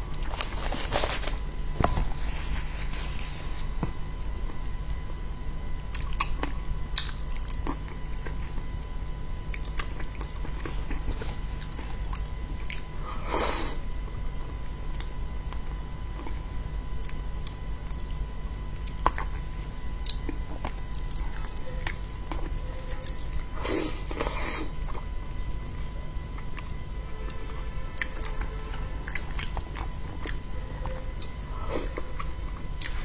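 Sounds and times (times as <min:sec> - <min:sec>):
steady low hum: 0:00.0 - 0:33.0
wet chewing: 0:28.0 - 0:33.0.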